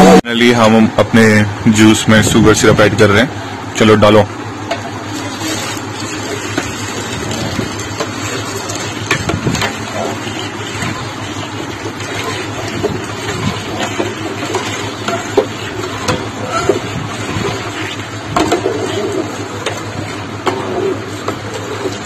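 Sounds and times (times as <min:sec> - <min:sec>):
syrup pouring into liquid: 0:05.1 - 0:20.3.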